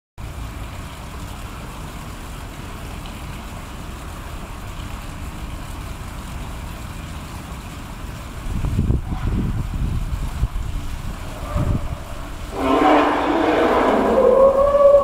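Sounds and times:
wind buffeting microphone: 0:08.4 - 0:15.0.

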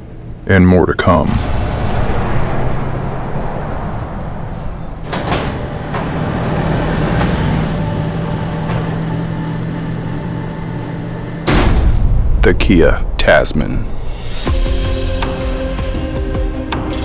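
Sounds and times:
mechanical hum: 0:00.0 - 0:12.5
low rumble: 0:01.2 - 0:16.0
heavy door clunk: 0:01.3 - 0:12.4.

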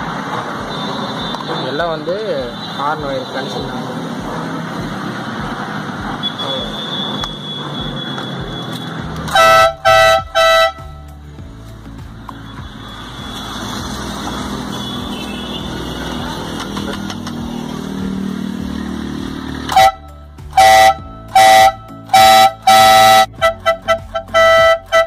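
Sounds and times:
steady rushing noise: 0:00.0 - 0:20.6
two-tone air horn honking: 0:06.2 - 0:11.1, 0:14.3 - 0:16.4, 0:19.7 - 0:25.0.

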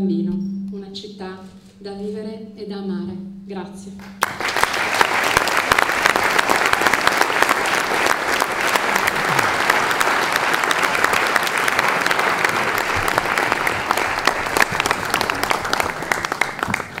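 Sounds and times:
audience applauding: 0:04.0 - 0:17.0.

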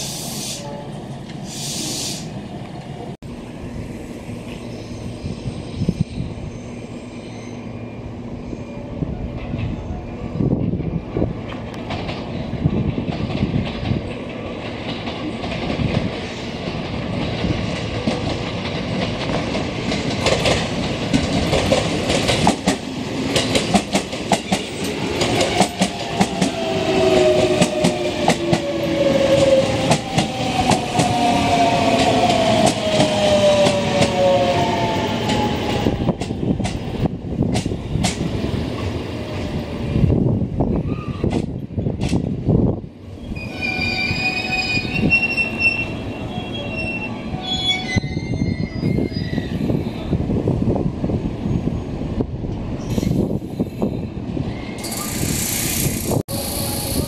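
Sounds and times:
train wheels clicking over rail joints: 0:11.4 - 0:26.6, 0:35.2 - 0:38.3, 0:41.2 - 0:42.3, 0:54.8 - 0:57.0
traction motors whining: 0:54.8 - 0:57.0.

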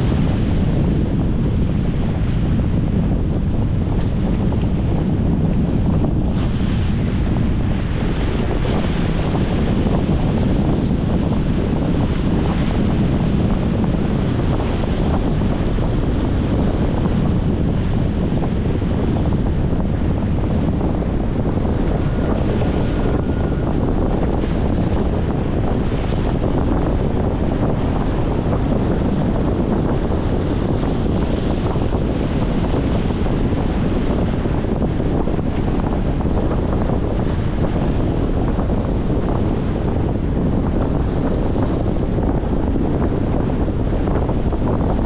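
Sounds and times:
wind buffeting microphone: 0:00.0 - 0:45.0.

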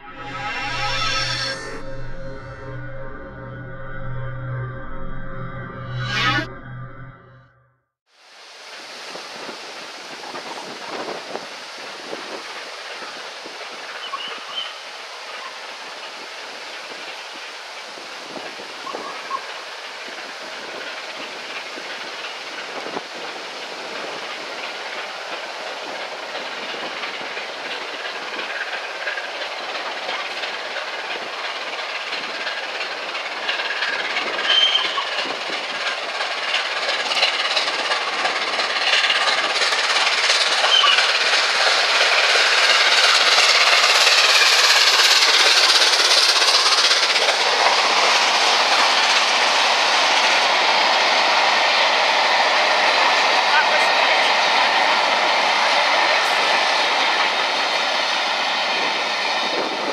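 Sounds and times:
steam train rushing past: 0:00.0 - 0:03.6, 0:08.2 - 0:59.9
train wheels clickety-clack: 0:08.6 - 0:59.9
wind noise: 0:08.8 - 0:13.8, 0:54.3 - 0:59.9.

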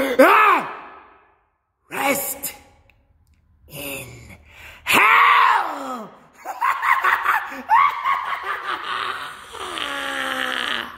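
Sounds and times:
man laughing: 0:06.4 - 0:10.3.

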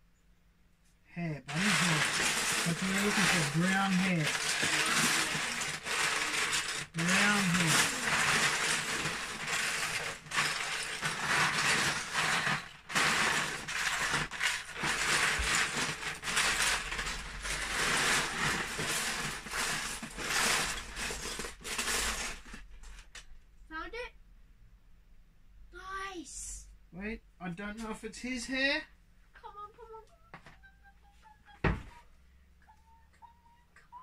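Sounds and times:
plastic bricks clattering: 0:01.5 - 0:23.0.

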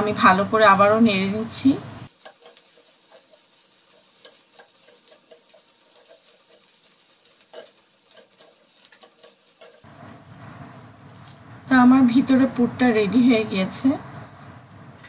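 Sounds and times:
food sizzling in a pan: 0:00.0 - 0:10.6
spatula scraping a pan: 0:02.1 - 0:09.9.

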